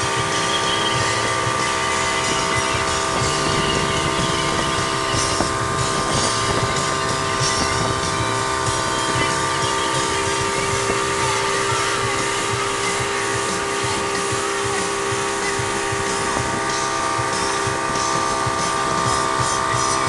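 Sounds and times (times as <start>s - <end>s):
outboard motor whine: 0.0s - 20.0s
rushing water: 0.0s - 20.0s
wind: 0.0s - 20.0s.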